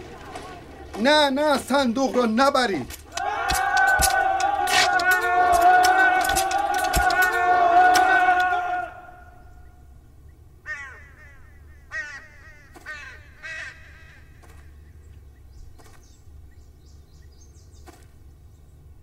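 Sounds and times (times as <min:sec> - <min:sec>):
crow cawing: 0:10.6 - 0:14.4.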